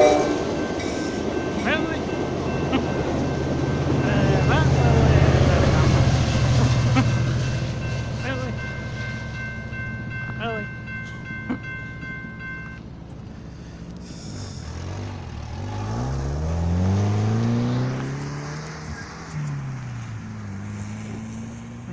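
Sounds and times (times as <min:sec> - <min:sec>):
engine speeding up: 0:13.1 - 0:21.9.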